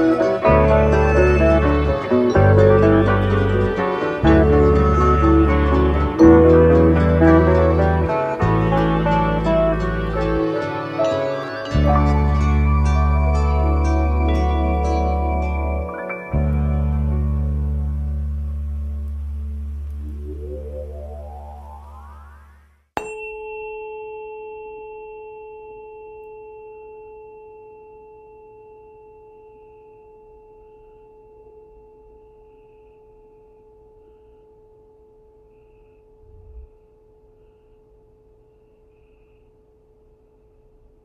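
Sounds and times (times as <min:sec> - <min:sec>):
metallic tone ringing: 0:00.0 - 0:18.2
music with rising glide: 0:00.0 - 0:22.8.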